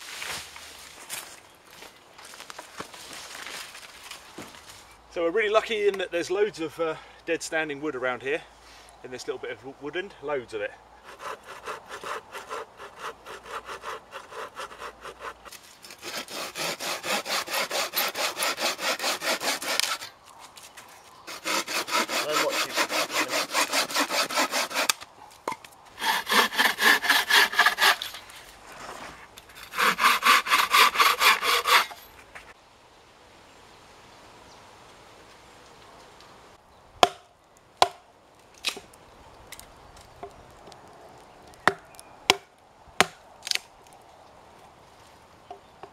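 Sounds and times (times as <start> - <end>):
hand saw cutting wood: 11.0 - 20.2, 21.3 - 25.0, 26.0 - 32.1.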